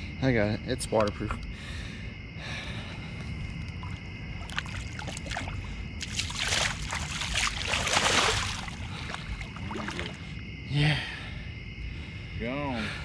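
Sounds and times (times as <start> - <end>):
water drips: 3.6 - 10.3
river water splashing: 3.8 - 10.3.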